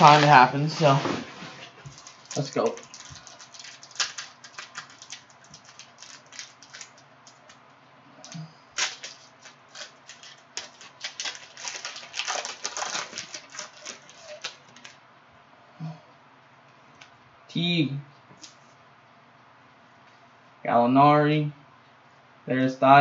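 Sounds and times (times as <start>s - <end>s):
plastic wrapper crinkling and tearing: 1.8s - 7.6s, 8.2s - 15.0s.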